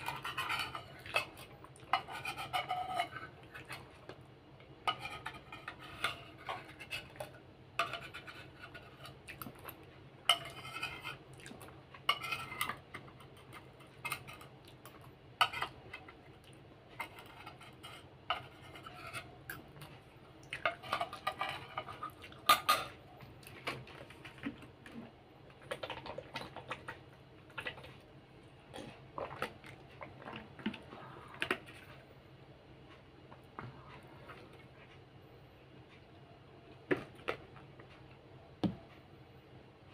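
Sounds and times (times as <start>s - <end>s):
metal spoon scraping a plate: 0.0s - 4.0s, 4.8s - 9.2s, 10.3s - 11.2s, 12.0s - 14.5s, 15.4s - 16.2s, 17.0s - 19.4s, 20.6s - 23.0s.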